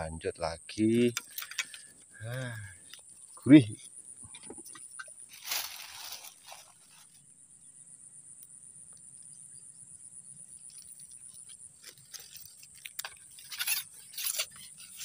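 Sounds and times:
high-pitched insect drone: 0:00.0 - 0:15.0
faint clicks and rustles: 0:01.0 - 0:07.2, 0:10.5 - 0:15.0.

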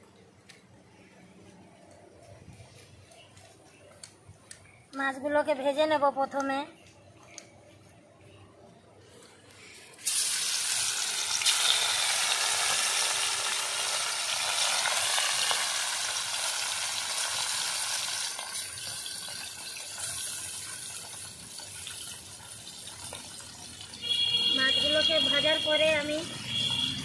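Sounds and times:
fish frying in hot oil: 0:10.0 - 0:26.8.

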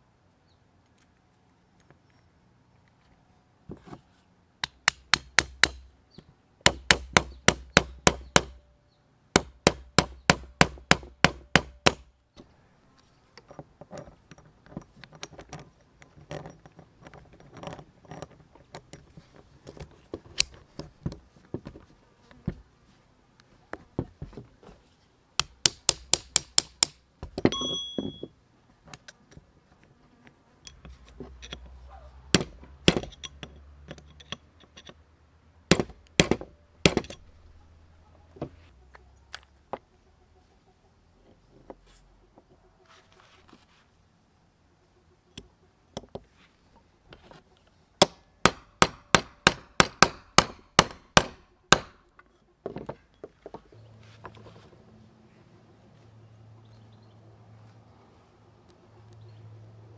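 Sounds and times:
metallic ring: 0:27.5 - 0:28.4.

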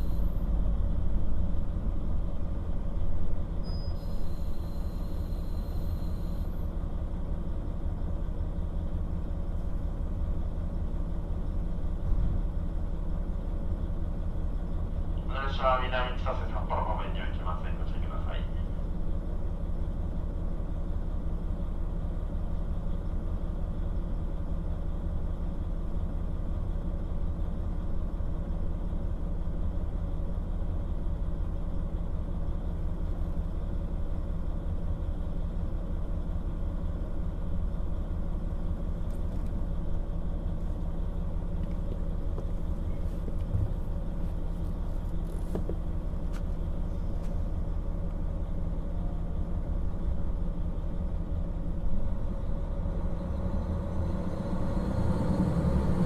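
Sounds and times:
diesel railcar engine humming: 0:00.0 - 0:56.0.

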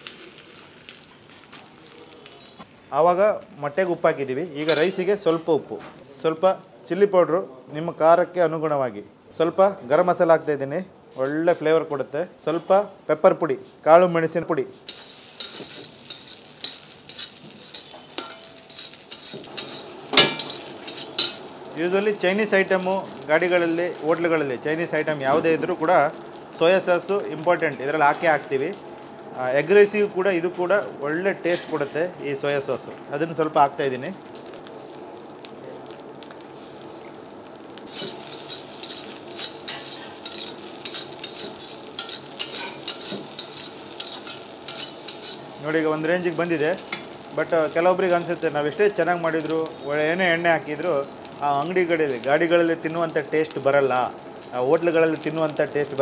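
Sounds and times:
frying sizzle: 0:00.0 - 0:56.0
spatula scraping a steel pan: 0:14.9 - 0:21.4, 0:37.9 - 0:45.5.

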